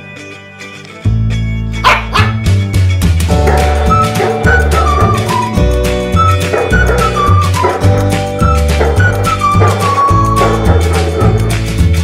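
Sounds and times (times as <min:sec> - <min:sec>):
background music with bass: 0:00.0 - 0:12.0
dog barking: 0:01.8 - 0:02.4, 0:03.5 - 0:04.6, 0:06.5 - 0:07.8, 0:08.8 - 0:11.4.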